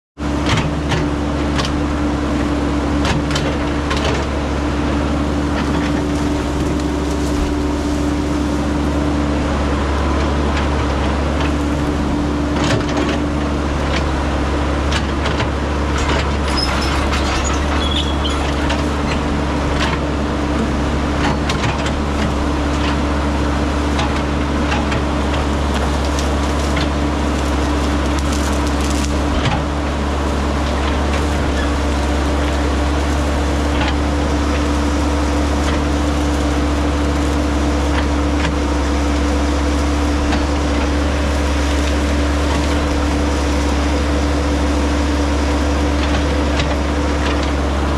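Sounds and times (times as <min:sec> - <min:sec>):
excavator diesel engine running: 0:00.2 - 0:47.9
branches cracking and snapping: 0:03.0 - 0:14.0, 0:21.2 - 0:47.9.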